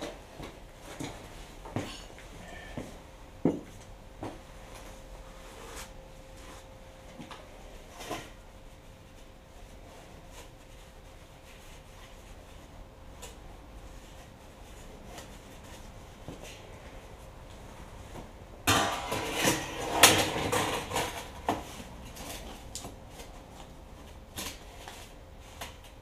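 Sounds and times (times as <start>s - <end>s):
objects clattering in steel barrel: 18.6s - 22.5s.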